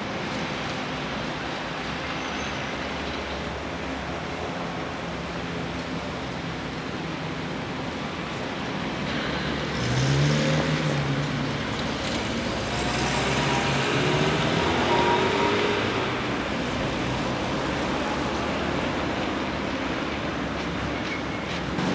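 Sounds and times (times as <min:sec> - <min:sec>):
passing vehicles rushing: 0:00.0 - 0:21.9
vehicle engine humming by: 0:09.1 - 0:21.9.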